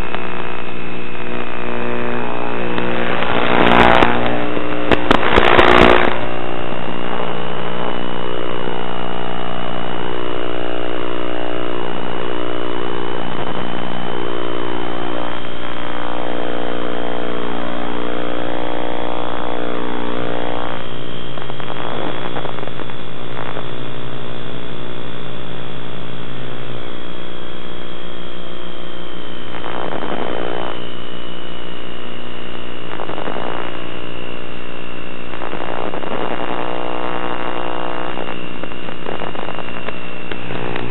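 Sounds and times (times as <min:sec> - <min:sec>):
model airplane motor droning: 0:01.2 - 0:06.8.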